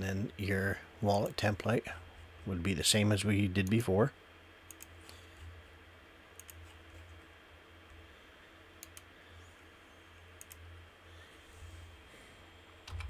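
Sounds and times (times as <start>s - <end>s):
low steady hum: 0.0s - 13.0s
computer mouse clicks: 4.7s - 5.2s, 6.4s - 6.8s, 8.8s - 9.1s, 10.4s - 10.6s.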